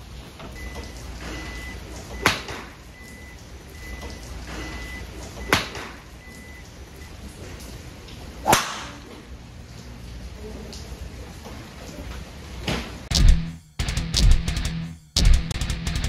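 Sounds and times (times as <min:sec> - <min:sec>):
golf club striking ball: 0:08.4 - 0:09.1
swish of golf swing: 0:08.4 - 0:09.1.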